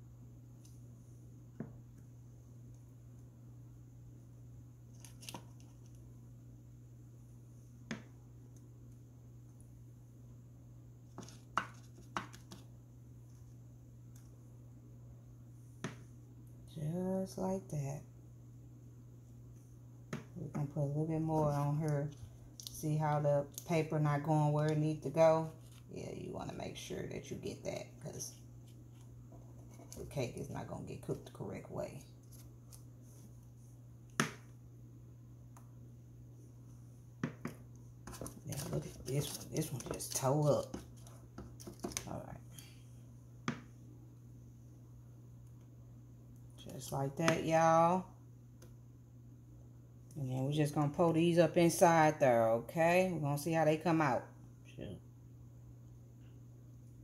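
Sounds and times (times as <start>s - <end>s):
faint low hum: 0.0s - 57.0s.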